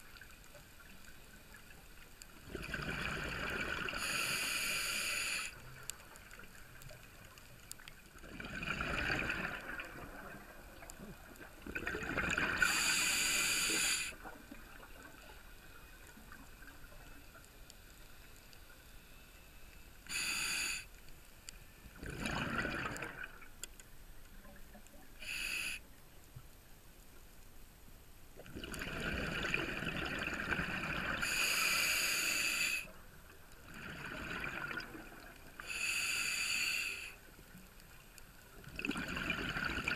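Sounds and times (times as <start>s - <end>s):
exhaled bubbles rushing: 2.4s - 4.0s, 8.2s - 12.6s, 22.0s - 23.4s, 28.5s - 31.2s, 33.7s - 35.4s, 38.7s - 39.9s
regulator hissing inhalations: 4.0s - 5.6s, 12.6s - 14.2s, 20.0s - 20.9s, 25.2s - 25.8s, 31.2s - 32.9s, 35.6s - 37.2s.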